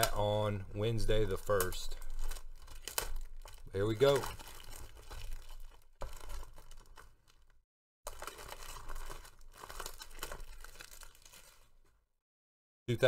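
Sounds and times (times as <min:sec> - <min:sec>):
plastic shrink-wrap crinkling and tearing: 0:00.0 - 0:12.1.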